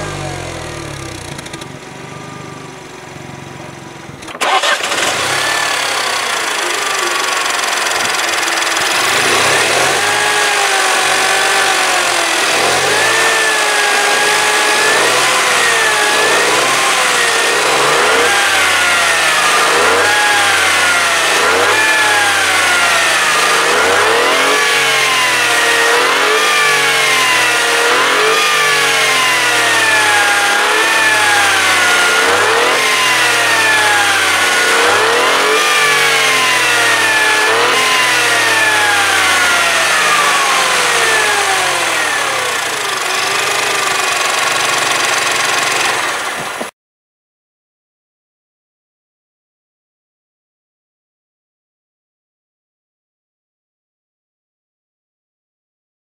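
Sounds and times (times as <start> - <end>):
car engine revving: 4.3 - 46.7.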